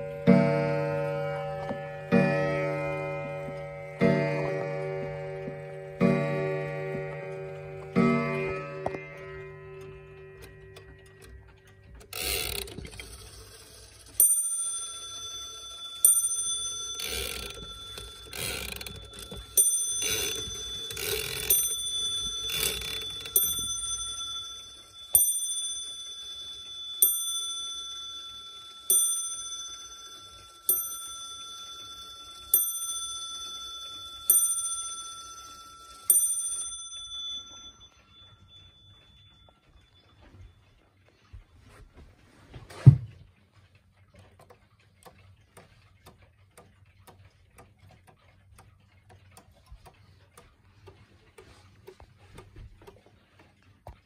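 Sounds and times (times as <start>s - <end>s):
clock bell striking: 0.0s - 40.6s.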